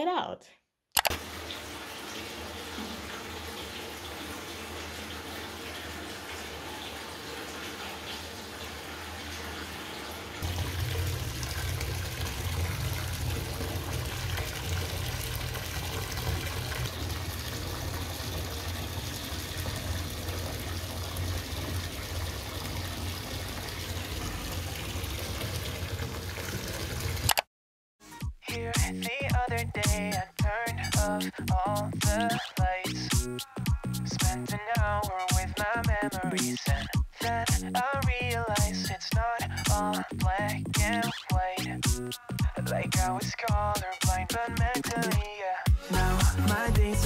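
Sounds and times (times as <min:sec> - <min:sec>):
tap water filling a bathtub: 0:01.1 - 0:27.4.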